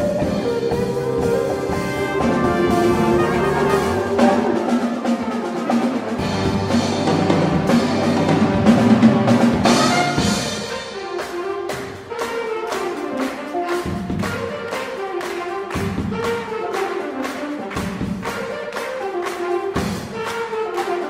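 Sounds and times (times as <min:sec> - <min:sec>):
big band jazz playing: 0:00.0 - 0:21.0.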